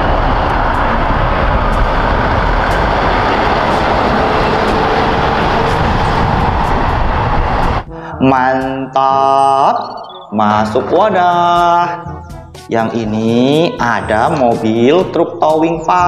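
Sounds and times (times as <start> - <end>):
truck driving by: 0.0 - 8.2.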